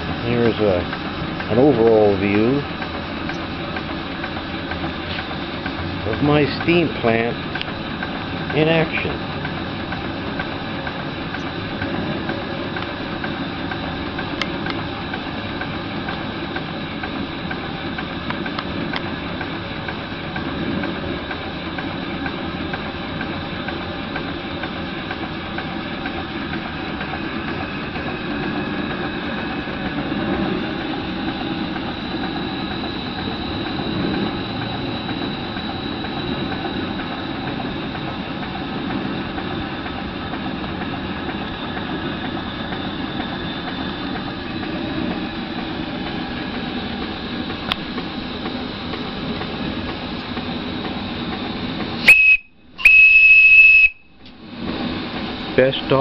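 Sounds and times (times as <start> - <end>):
gas burner roar: 0.0 - 56.0
steam engine running: 0.0 - 56.0
steam whistle: 52.0 - 54.2.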